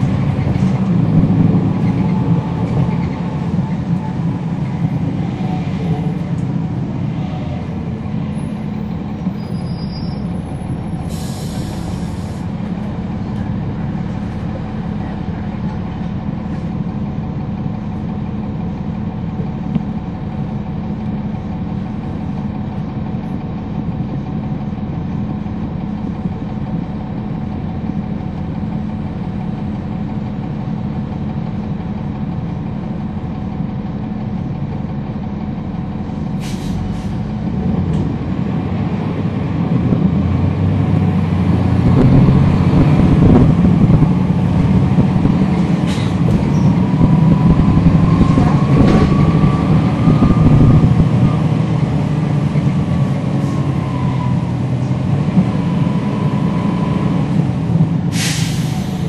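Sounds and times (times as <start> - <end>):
bus diesel engine rumble: 0.0 - 59.0
brief hiss: 58.1 - 59.0.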